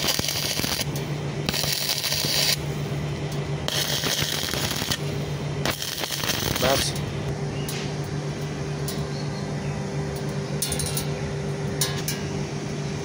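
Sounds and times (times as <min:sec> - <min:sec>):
welding machine humming: 0:00.0 - 0:09.0.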